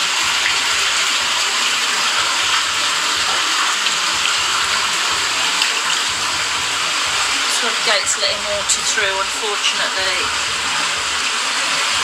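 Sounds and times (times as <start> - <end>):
floodwater rushing: 0.0 - 12.0.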